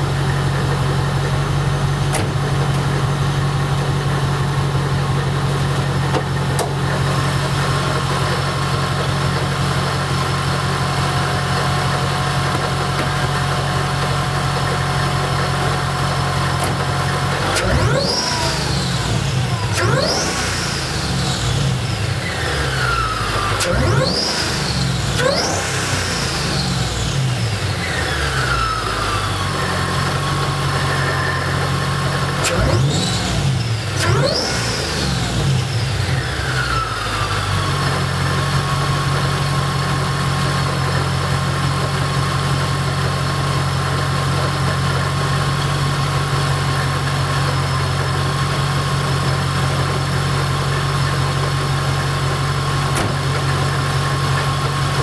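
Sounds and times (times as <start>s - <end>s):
car engine idling: 0.0s - 55.0s
supercharger whine: 0.0s - 55.0s
car engine revving: 4.8s - 39.2s.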